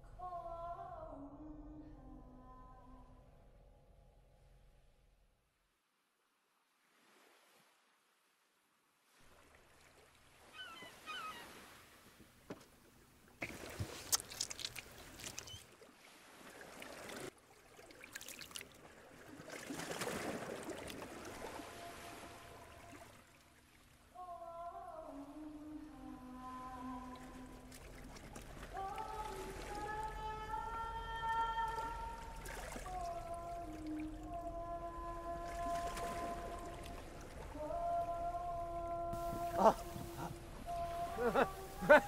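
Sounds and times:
water splashing around boat: 9.0 - 42.0.

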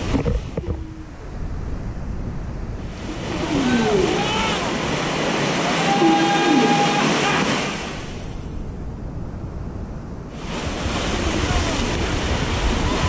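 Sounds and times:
rushing whitewater: 0.0 - 8.7, 10.2 - 13.0
voices calling out: 3.2 - 7.9.

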